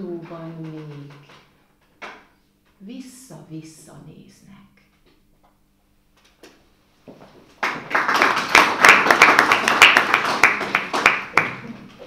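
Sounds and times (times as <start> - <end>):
audience clapping: 7.5 - 12.0.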